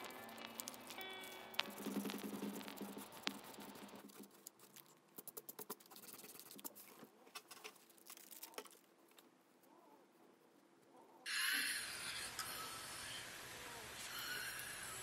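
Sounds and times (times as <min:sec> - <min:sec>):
pencil ticking on paper: 0:00.0 - 0:06.8.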